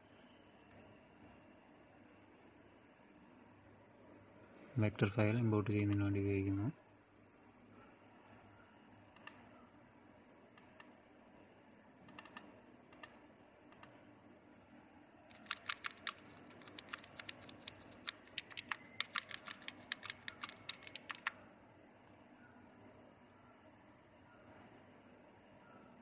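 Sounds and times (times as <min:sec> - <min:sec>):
keyboard keys clicking: 0:15.3 - 0:21.4.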